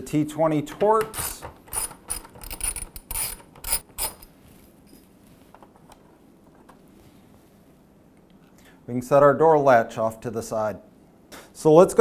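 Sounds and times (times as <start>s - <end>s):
ratcheting screwdriver clicking: 1.0s - 4.3s.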